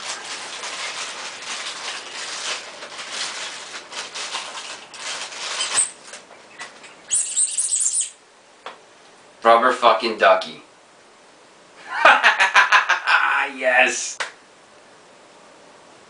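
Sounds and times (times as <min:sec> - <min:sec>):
plastic wrapping crinkling: 0:00.0 - 0:07.2.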